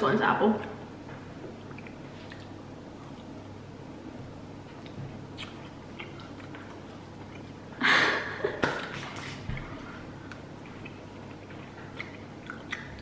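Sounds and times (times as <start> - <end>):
people chewing: 1.4 - 3.6, 4.6 - 7.8, 8.6 - 13.0.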